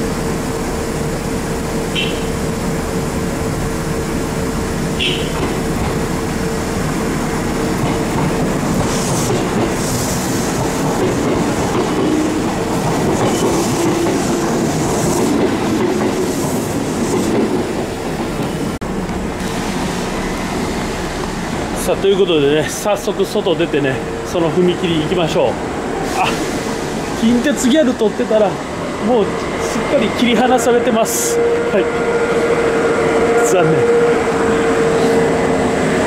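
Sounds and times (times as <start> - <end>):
train wheels clacking on rails: 5.0 - 6.5, 7.3 - 20.6.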